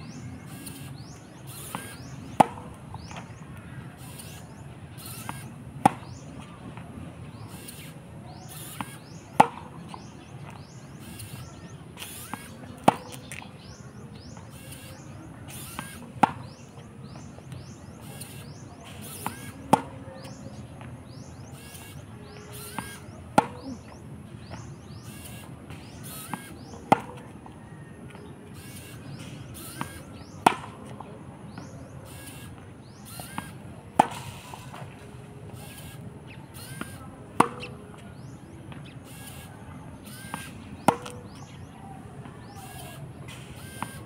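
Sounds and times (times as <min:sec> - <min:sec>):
racket hitting tennis ball: 0:01.5 - 0:03.3, 0:08.6 - 0:10.1, 0:11.3 - 0:13.4, 0:19.0 - 0:20.4, 0:22.6 - 0:24.6, 0:25.7 - 0:27.4, 0:29.2 - 0:31.7, 0:32.9 - 0:34.9, 0:36.8 - 0:37.8, 0:40.1 - 0:41.5.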